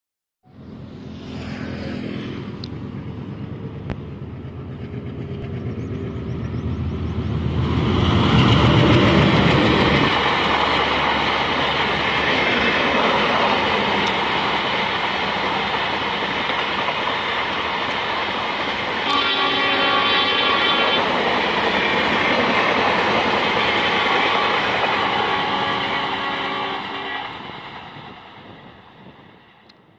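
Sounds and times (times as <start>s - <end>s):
diesel locomotive droning: 0.4s - 29.9s
train coaches rumbling on rails: 0.7s - 29.9s
train horn: 19.0s - 21.2s, 23.5s - 27.5s.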